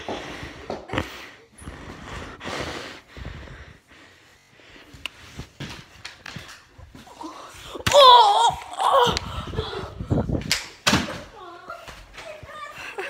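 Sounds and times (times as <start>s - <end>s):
boy laughing: 11.0s - 13.0s.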